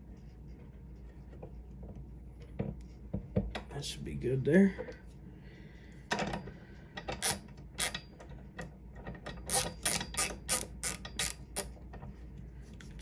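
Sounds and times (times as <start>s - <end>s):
hand ratchet clicking: 7.0s - 8.3s, 9.0s - 11.7s.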